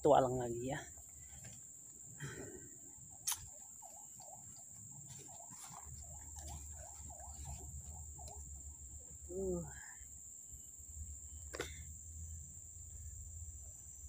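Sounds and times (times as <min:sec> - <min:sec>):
forest insects droning: 0:00.0 - 0:14.0
sharp click: 0:03.2 - 0:03.5.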